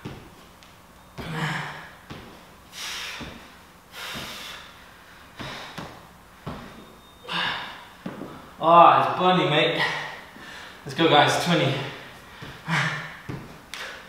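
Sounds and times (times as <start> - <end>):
man exhaling forcefully: 2.7 - 4.8, 7.3 - 7.9.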